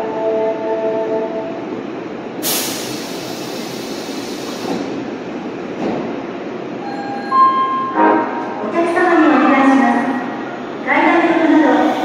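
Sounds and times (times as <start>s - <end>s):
subway train running: 0.0s - 12.0s
sharp hiss of air: 2.4s - 4.9s.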